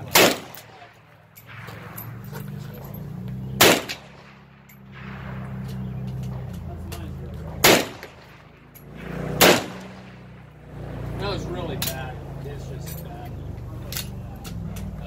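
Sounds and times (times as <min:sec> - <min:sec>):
rifle shots: 0:00.0 - 0:02.7, 0:03.5 - 0:06.5, 0:07.5 - 0:10.5.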